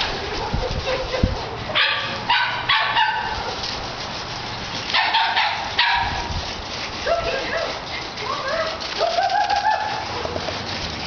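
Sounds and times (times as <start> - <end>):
dog barking: 1.8 - 3.6, 4.9 - 6.3.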